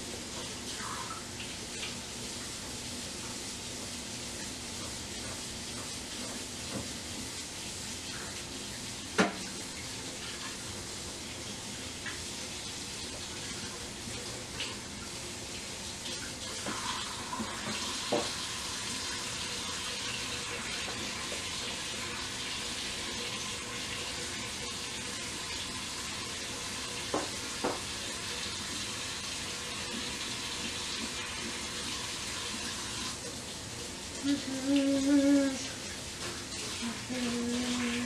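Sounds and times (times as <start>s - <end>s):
tap running into sink: 4.8s - 7.3s, 9.1s - 9.6s, 16.4s - 18.5s, 27.0s - 28.0s.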